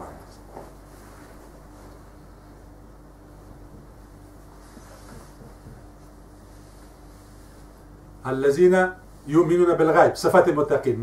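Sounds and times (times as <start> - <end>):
faint rustles: 0.0 - 8.0
low electrical hum: 0.0 - 11.0.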